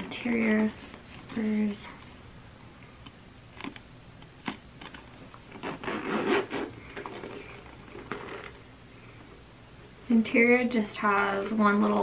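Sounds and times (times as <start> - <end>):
zipper rasping open: 4.5 - 8.6.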